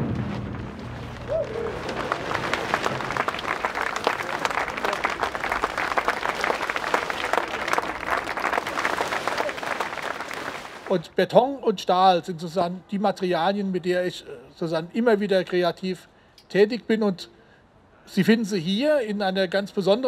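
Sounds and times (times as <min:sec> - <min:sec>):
crowd applauding: 0:01.0 - 0:10.9.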